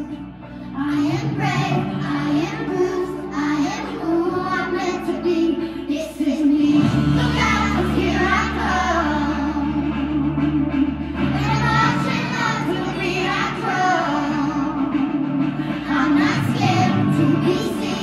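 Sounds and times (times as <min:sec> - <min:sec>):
children singing: 0:00.8 - 0:18.0
deep bass line: 0:06.6 - 0:18.0.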